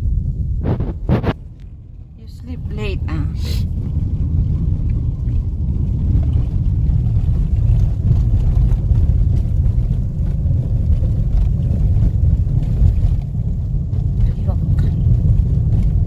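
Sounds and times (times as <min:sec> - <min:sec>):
car engine and tyre noise: 0:00.0 - 0:16.0.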